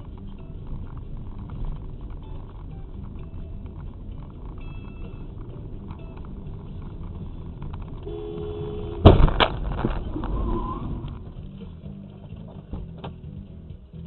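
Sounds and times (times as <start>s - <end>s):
road and engine rumble: 0.0s - 14.0s
two-tone car horn: 8.0s - 9.4s
vehicle crash bang: 8.7s - 11.4s.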